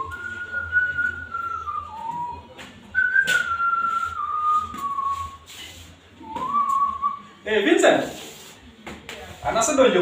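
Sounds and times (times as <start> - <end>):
person whistling a tune: 0.0 - 5.5, 6.2 - 7.3.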